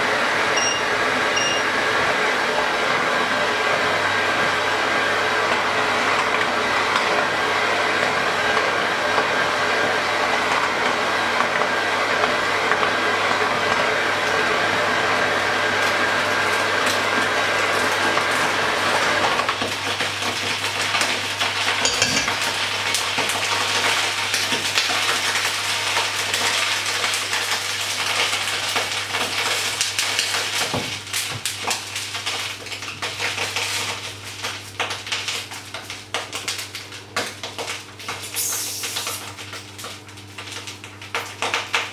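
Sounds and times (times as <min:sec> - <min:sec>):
electric hand mixer whining: 0:00.0 - 0:27.7
knocks of steel bowl handled: 0:21.8 - 0:22.4.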